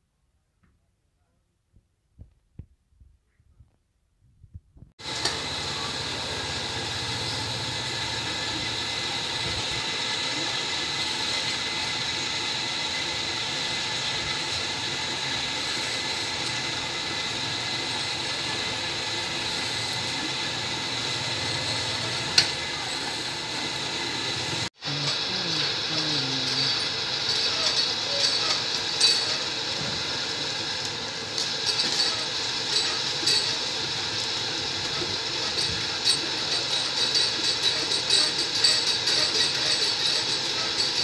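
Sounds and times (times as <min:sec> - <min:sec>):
machine running with whine: 0:05.0 - 0:41.0.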